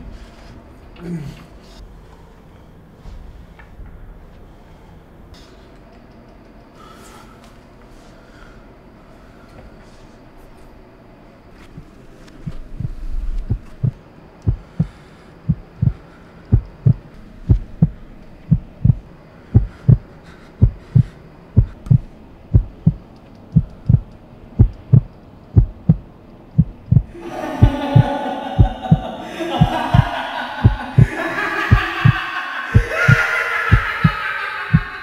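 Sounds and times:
heartbeat thumps: 0:11.7 - 0:35.0
low rumble: 0:11.7 - 0:35.0.

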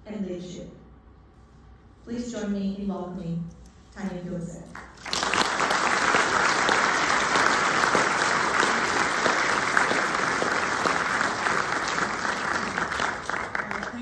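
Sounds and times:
audience applauding: 0:04.9 - 0:14.0.

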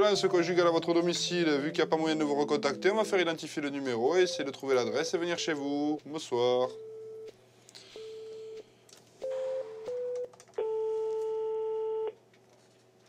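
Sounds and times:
busy signal beeps: 0:09.2 - 0:12.1
telephone ringing tone: 0:09.2 - 0:12.1.

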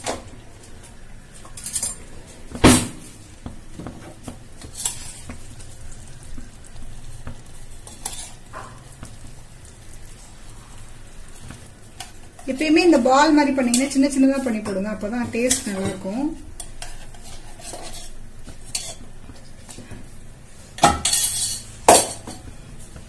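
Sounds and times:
spoons clinking against steel pot: 0:13.6 - 0:18.1, 0:18.7 - 0:19.0, 0:20.8 - 0:22.5.

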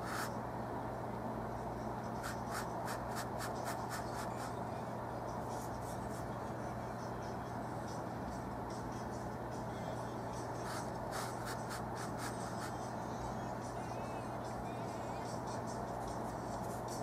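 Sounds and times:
brush stroking on canvas: 0:00.0 - 0:00.3, 0:02.2 - 0:04.5, 0:10.6 - 0:12.8
steady low hum: 0:00.0 - 0:17.0.

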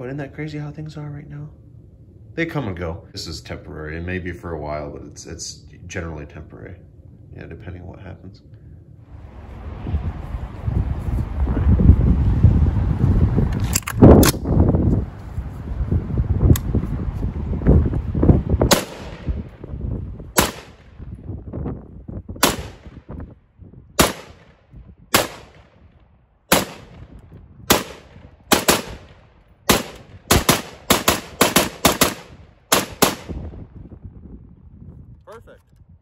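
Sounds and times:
rifle shots: 0:18.7 - 0:19.4, 0:20.4 - 0:21.0, 0:22.4 - 0:23.0, 0:24.0 - 0:25.8, 0:26.5 - 0:27.1, 0:27.7 - 0:33.4.

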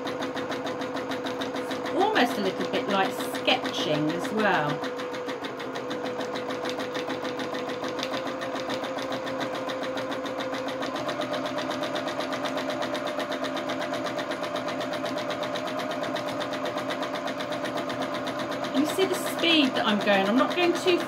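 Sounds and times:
sewing machine running: 0:00.0 - 0:21.0.

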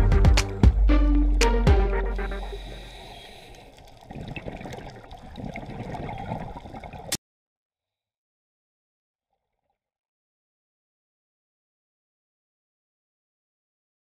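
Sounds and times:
underwater bubbles gurgling: 0:02.2 - 0:07.2.

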